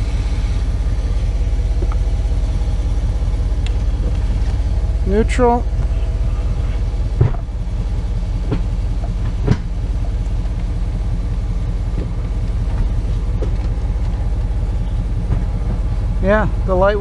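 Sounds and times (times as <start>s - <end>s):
pickup engine idling: 0.0s - 17.0s
clunks: 5.6s - 16.2s.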